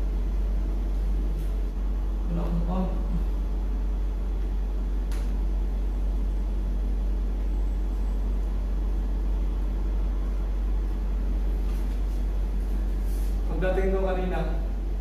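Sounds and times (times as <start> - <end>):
steady low hum: 0.0 - 15.0
sharp click: 5.1 - 5.4.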